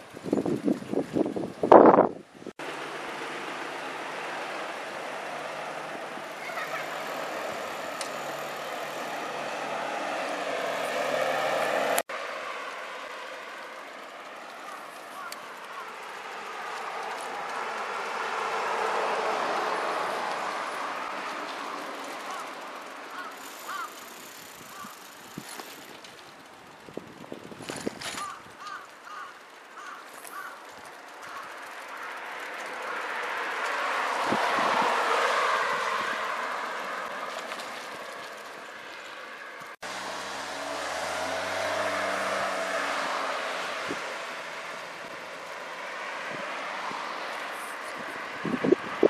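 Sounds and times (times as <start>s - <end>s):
vehicle passing: 2.6s - 27.2s, 28.1s - 49.0s
crow cawing: 14.7s - 16.0s, 22.2s - 24.0s, 24.7s - 25.0s, 28.2s - 32.1s.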